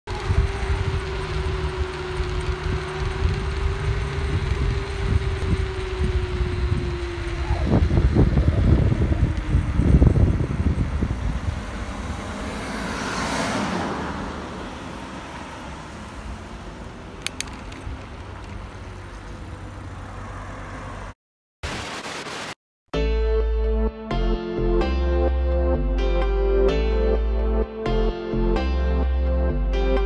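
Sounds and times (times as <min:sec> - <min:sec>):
wind and handling rumble: 0:00.1 - 0:12.9, 0:13.8 - 0:21.0
street noise: 0:00.1 - 0:21.2
vehicle driving by: 0:00.1 - 0:21.2.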